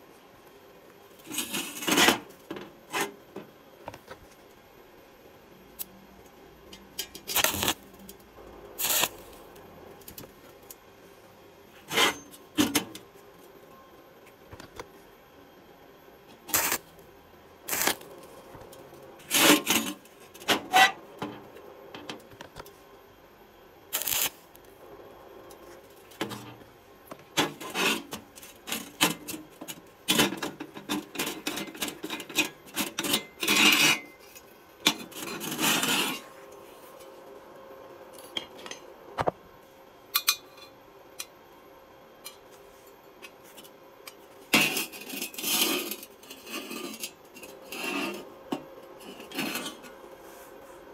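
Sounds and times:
metal scraping and clinking on worktable: 11.8 - 12.9, 30.1 - 36.4, 44.6 - 48.3, 49.0 - 50.0.

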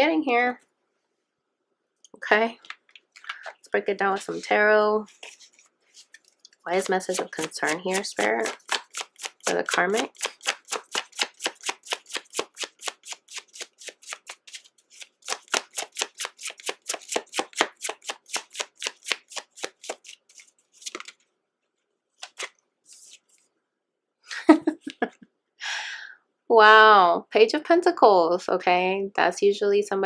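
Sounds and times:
cards being shuffled: 4.2 - 21.3, 22.2 - 23.4.

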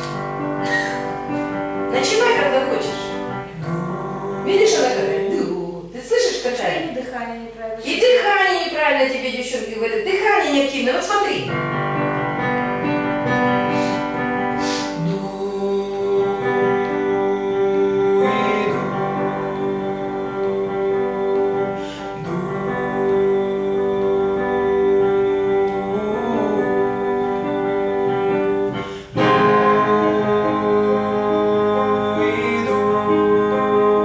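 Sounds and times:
instrumental accompaniment: 0.0 - 6.0, 11.3 - 34.0
person singing sustained notes: 2.9 - 5.9, 13.7 - 34.0.

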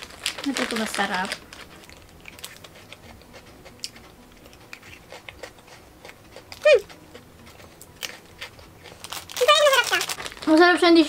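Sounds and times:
crunchy chewing: 0.0 - 10.5.

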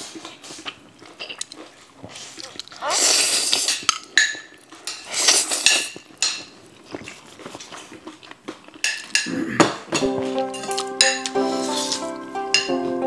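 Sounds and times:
noodles being slurped: 0.1 - 9.5
utensils clinking on ceramic plates: 3.6 - 6.6, 8.8 - 12.9.

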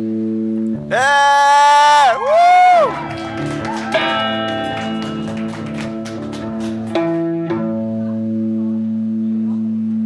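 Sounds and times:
live rock band playing: 2.9 - 8.0
guitar chord ringing: 3.0 - 9.9.

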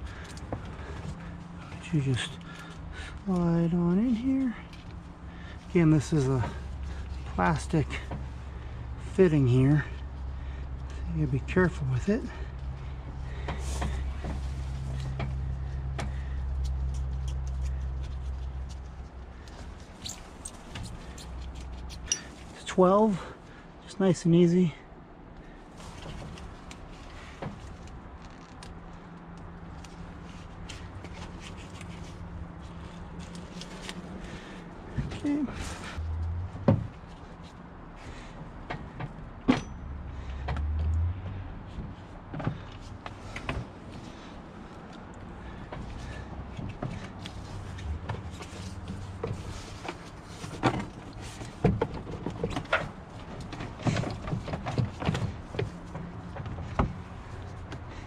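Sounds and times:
small clicks and rustles of fittings: 0.0 - 5.7, 12.7 - 22.7, 25.3 - 36.1.

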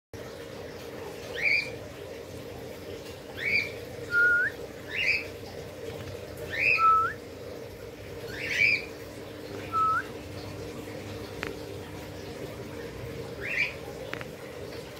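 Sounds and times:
parrots squawking: 13.4 - 13.8.

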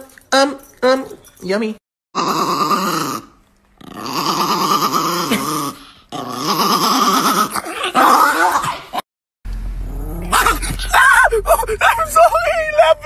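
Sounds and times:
small dog growling: 2.2 - 9.0, 9.8 - 11.0.

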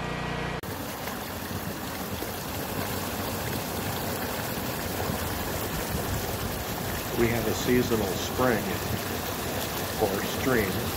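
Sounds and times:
stream rushing over rocks: 0.6 - 10.9.

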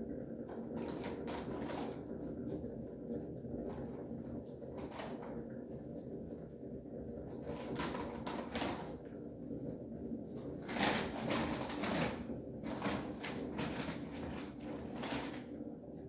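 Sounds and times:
low room hum: 0.0 - 16.0
plastic snack packet crinkling: 10.6 - 15.5.

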